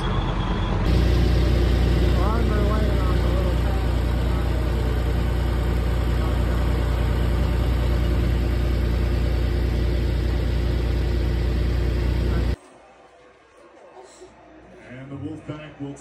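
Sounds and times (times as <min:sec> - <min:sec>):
loader engine humming: 0:00.0 - 0:12.6.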